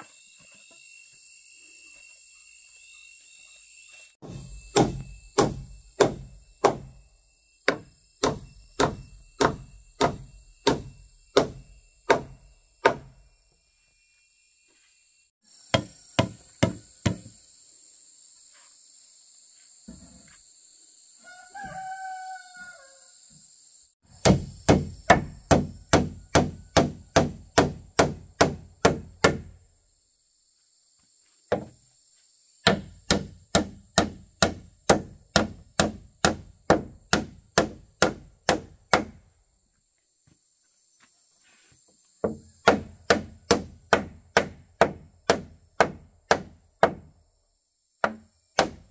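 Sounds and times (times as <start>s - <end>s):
rooster crowing: 21.2s - 23.3s.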